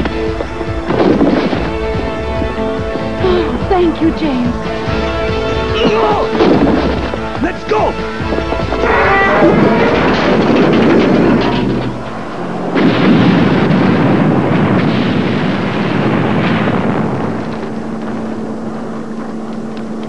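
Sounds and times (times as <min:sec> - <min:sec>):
engine hum: 0:00.0 - 0:20.0
cartoon explosion rumbling: 0:12.6 - 0:17.8.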